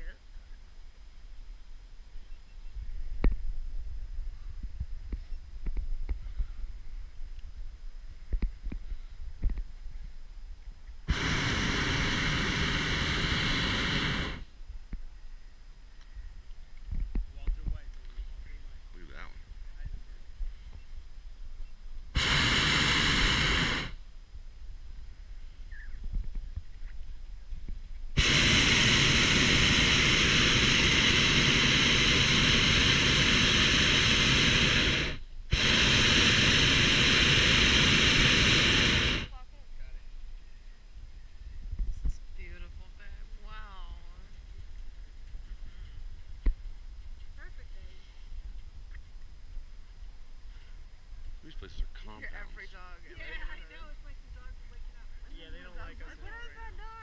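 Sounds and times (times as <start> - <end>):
propane burner blast: 11.0 - 14.6, 22.1 - 24.1, 28.0 - 39.4.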